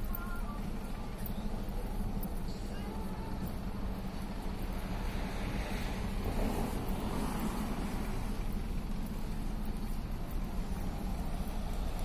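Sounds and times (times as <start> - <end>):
road traffic noise: 0.0 - 12.0
vehicle passing by: 4.9 - 8.5.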